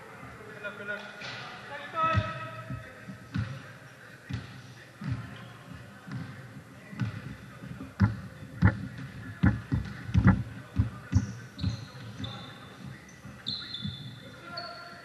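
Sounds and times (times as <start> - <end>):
basketball bouncing on court: 4.2 - 5.3, 6.1 - 6.4, 7.0 - 14.8.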